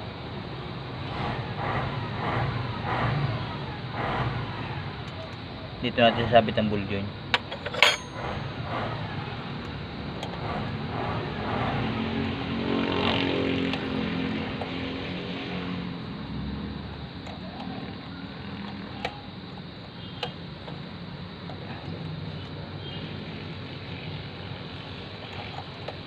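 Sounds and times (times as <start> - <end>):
vehicle engine: 0.0 - 26.0
metal linkage click: 7.4 - 8.4.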